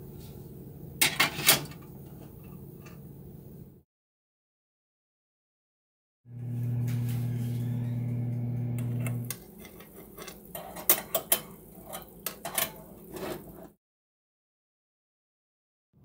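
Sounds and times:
air fryer humming: 6.3s - 13.6s
metal pan and rack clinking: 9.2s - 13.4s.

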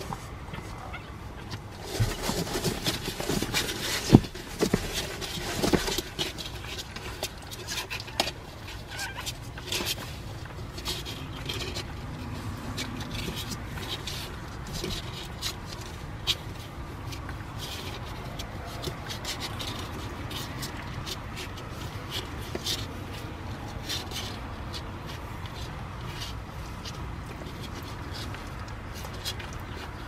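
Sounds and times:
puppies squirming on cardboard: 0.0s - 30.0s.

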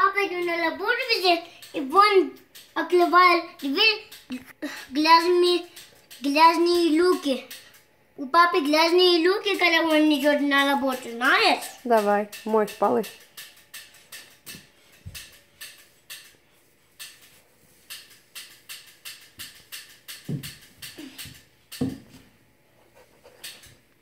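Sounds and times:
cloth rubbing on tile floor: 16.6s - 18.3s.

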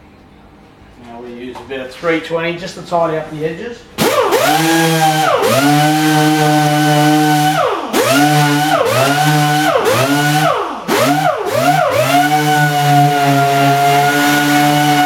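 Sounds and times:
orbital sander on plastic: 4.0s - 15.0s.

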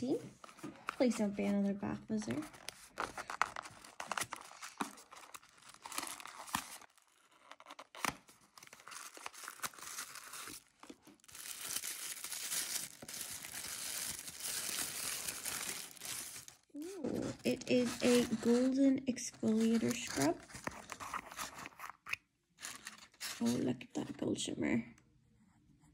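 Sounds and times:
tissue paper crinkling: 2.2s - 18.8s, 19.4s - 22.0s, 22.6s - 23.6s.

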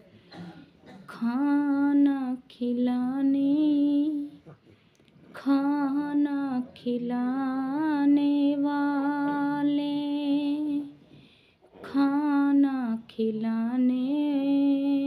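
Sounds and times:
woman singing unaccompanied: 1.1s - 4.4s, 5.3s - 11.0s, 11.8s - 15.0s.

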